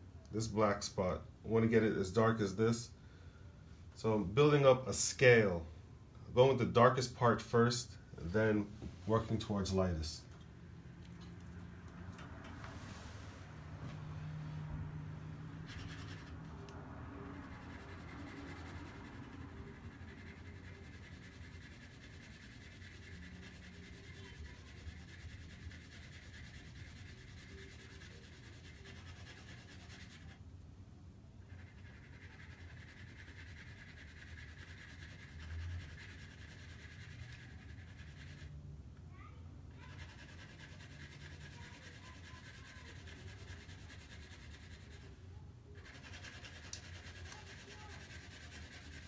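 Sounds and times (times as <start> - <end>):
pencil scratching on paper: 15.3 - 30.4, 31.4 - 38.6, 39.7 - 45.2, 45.8 - 49.0.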